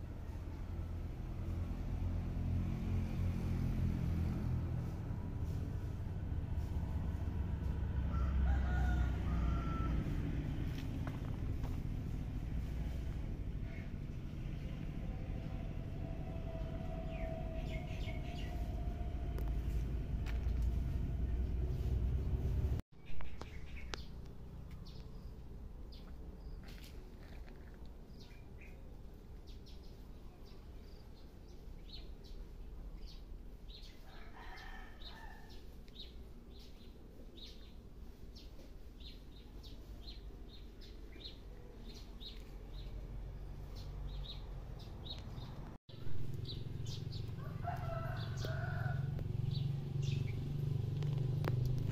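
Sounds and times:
low rumble: 0.0 - 26.2
rooster crowing: 7.9 - 10.5, 34.0 - 35.6, 47.2 - 49.2
small birds chirping: 23.0 - 34.2, 35.0 - 51.9.

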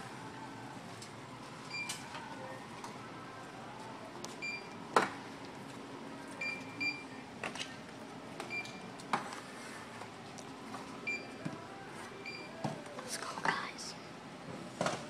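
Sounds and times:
barcode scanner beeps: 6.4 - 7.1.

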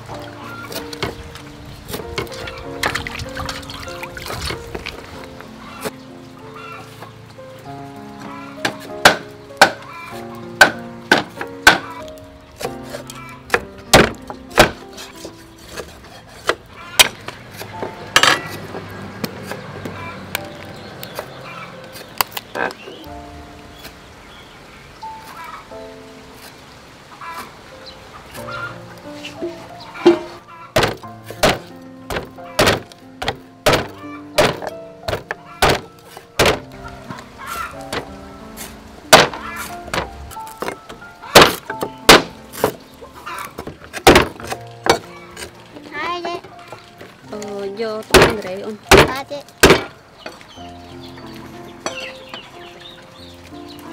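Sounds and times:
background music with held notes: 0.0 - 53.9
cleaver chopping on wooden board: 8.6 - 9.8, 10.6 - 11.9, 12.6 - 20.0, 30.0 - 36.7, 37.9 - 42.8, 43.5 - 45.5, 48.1 - 50.0.

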